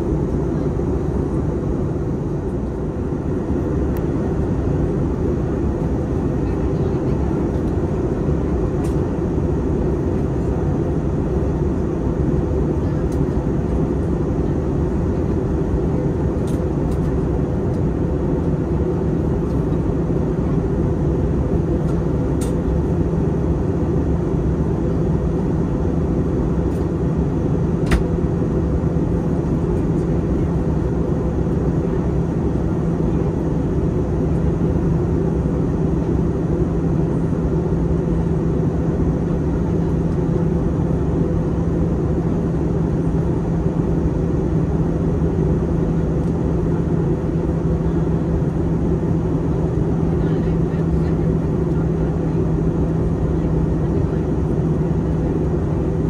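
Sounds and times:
airplane cabin engine rumble: 0:00.0 - 0:56.0.

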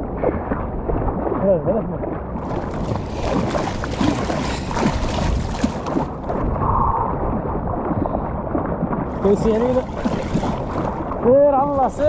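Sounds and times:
sea water splashing: 0:00.0 - 0:12.0
wind noise on microphone: 0:02.4 - 0:12.0.

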